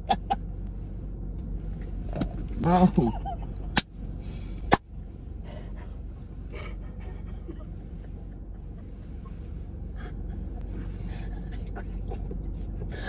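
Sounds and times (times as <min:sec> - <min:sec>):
car engine idling: 0:00.0 - 0:13.0
woman laughing breathlessly: 0:05.5 - 0:13.0.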